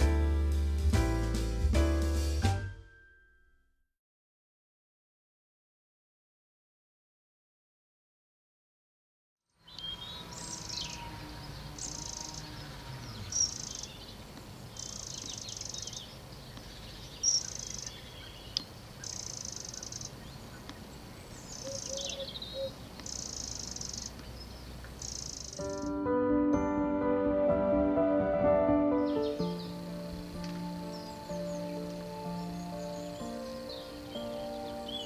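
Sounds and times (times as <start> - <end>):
buzzy bird call: 9.6 - 14.0, 21.5 - 24.2
sharp bird tweets: 9.6 - 26.0, 30.8 - 35.0
soft bird chirps: 9.6 - 26.0.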